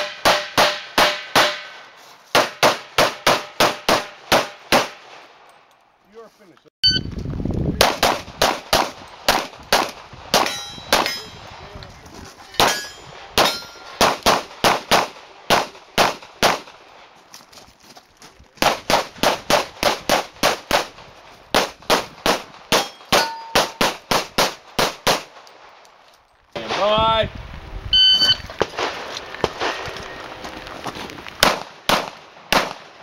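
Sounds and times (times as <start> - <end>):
metallic ring of steel targets: 10.4 - 11.5, 12.6 - 14.0, 22.8 - 23.8
handgun shots: 21.6 - 25.3.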